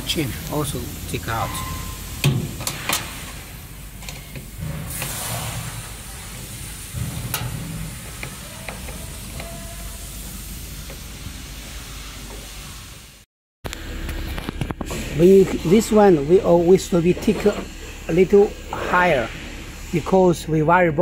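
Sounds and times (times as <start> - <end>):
steady low hum: 0.0 - 13.1, 13.7 - 21.0.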